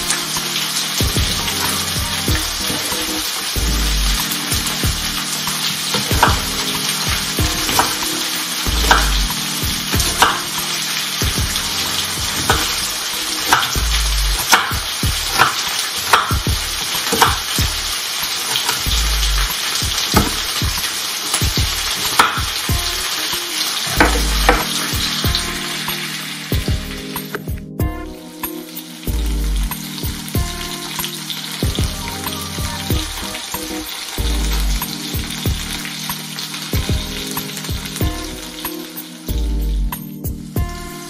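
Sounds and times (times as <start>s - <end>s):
frying sizzle: 0.0s - 41.0s
knife chopping on wooden board: 20.2s - 20.5s.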